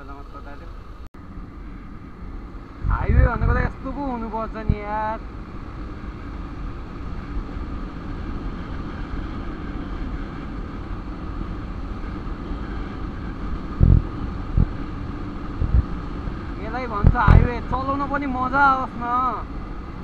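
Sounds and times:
motorcycle engine hum: 0:00.0 - 0:20.0
wind rushing over microphone: 0:00.6 - 0:20.0
short low thumps: 0:13.8 - 0:14.8, 0:15.6 - 0:16.0.

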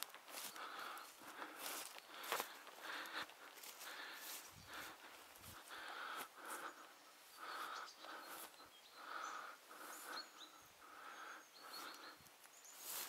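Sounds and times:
footsteps through long grass: 0:00.0 - 0:08.7, 0:11.6 - 0:13.0
faint high bird chirps: 0:06.7 - 0:13.0.

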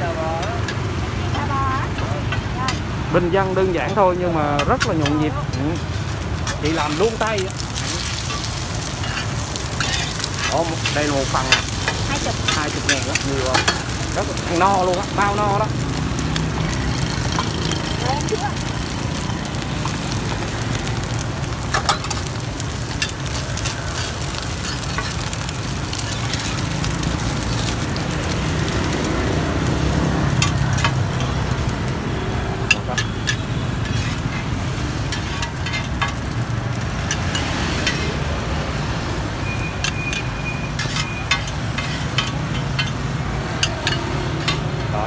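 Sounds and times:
food sizzling in oil: 0:00.0 - 0:45.0
spatula clinking and scraping pan: 0:03.8 - 0:15.6, 0:21.7 - 0:27.9, 0:32.6 - 0:36.4, 0:39.8 - 0:44.9.

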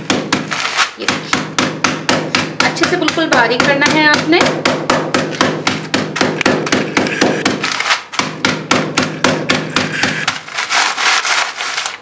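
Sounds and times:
rolling pin pounding biscuits: 0:00.0 - 0:12.0
plastic bag crinkling: 0:00.5 - 0:01.1, 0:07.1 - 0:08.2, 0:09.9 - 0:12.0.

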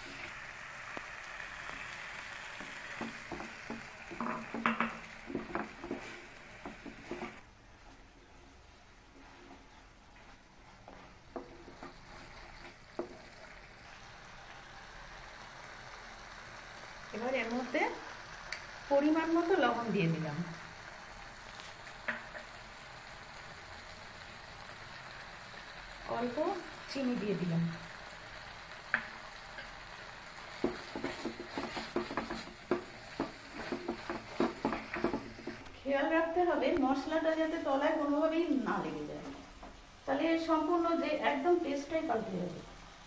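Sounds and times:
paste sizzling in a frying pan: 0:00.0 - 0:43.0
wooden spatula stirring: 0:02.4 - 0:13.5, 0:30.4 - 0:35.7.

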